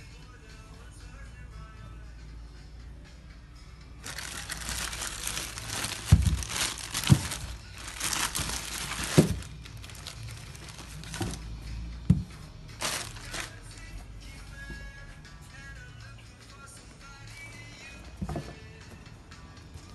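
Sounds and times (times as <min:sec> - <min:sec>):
plastic bag crinkling: 0:04.0 - 0:11.4, 0:12.8 - 0:13.6.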